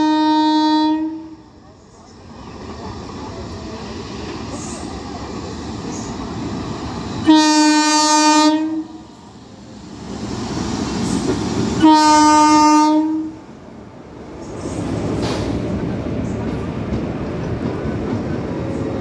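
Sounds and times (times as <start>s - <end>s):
train horn blasts: 0.0s - 1.4s, 7.2s - 9.0s, 11.8s - 13.4s
train rumble: 0.0s - 19.0s.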